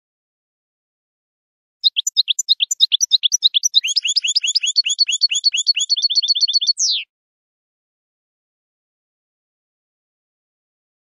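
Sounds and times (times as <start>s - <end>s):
goldfinch singing: 1.8s - 7.0s.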